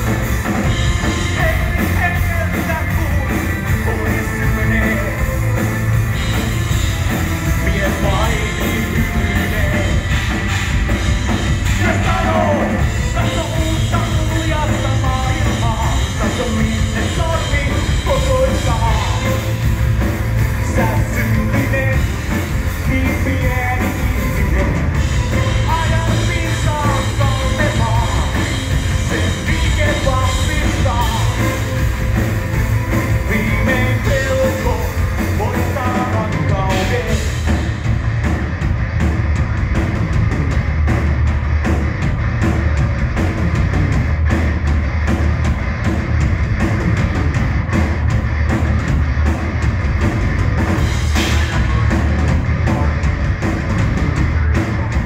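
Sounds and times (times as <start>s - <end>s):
drum kit: 0.0s - 55.0s
electric guitars: 0.0s - 55.0s
man singing into a microphone: 7.6s - 10.0s, 11.7s - 19.5s, 20.6s - 31.6s, 33.2s - 37.3s.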